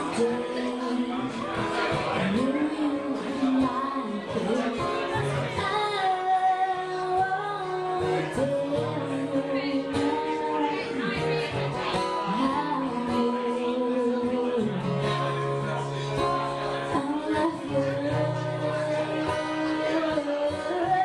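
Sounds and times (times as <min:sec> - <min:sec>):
woman singing slow song: 0:00.0 - 0:15.0, 0:16.9 - 0:21.0
acoustic guitar: 0:00.0 - 0:21.0.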